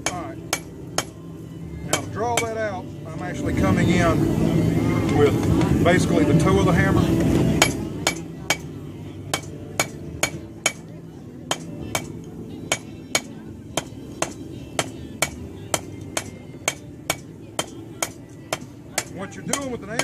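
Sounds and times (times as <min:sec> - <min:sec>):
hammer striking steel on anvil: 0:00.0 - 0:01.2, 0:01.9 - 0:02.6, 0:07.6 - 0:10.8, 0:11.5 - 0:20.0.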